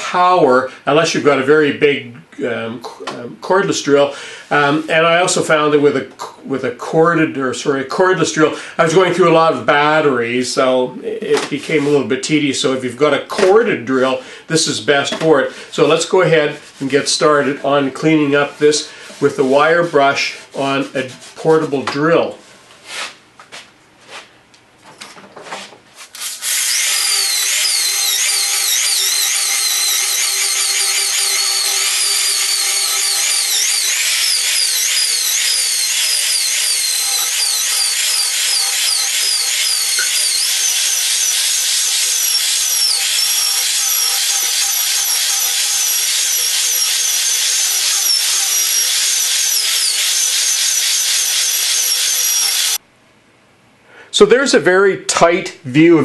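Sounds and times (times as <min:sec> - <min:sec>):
drill with wire brush scraping wood: 0:26.0 - 0:52.8.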